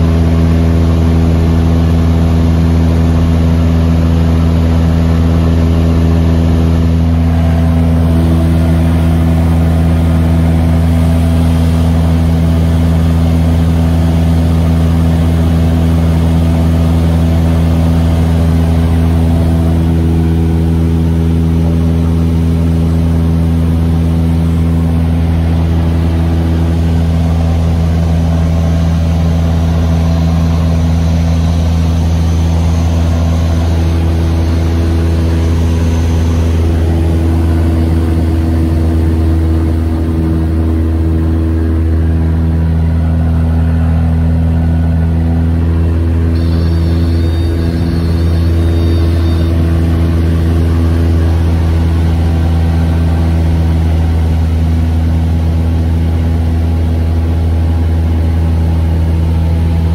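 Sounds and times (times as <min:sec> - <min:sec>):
propeller aircraft engine droning: 0:00.0 - 0:59.9.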